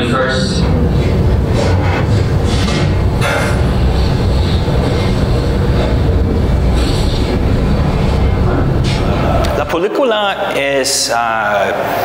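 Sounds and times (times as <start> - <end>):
loud low rumble: 0.0 - 10.6
pulsing hiss: 0.1 - 9.7.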